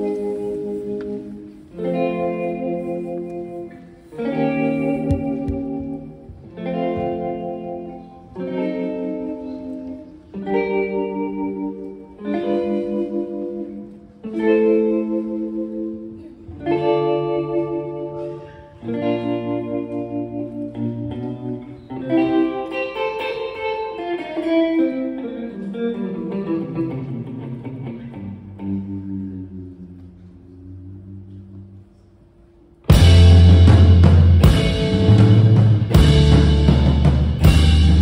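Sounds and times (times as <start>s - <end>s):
electric guitar chords: 0.0s - 31.9s, 32.8s - 38.0s
bass line: 32.9s - 38.0s.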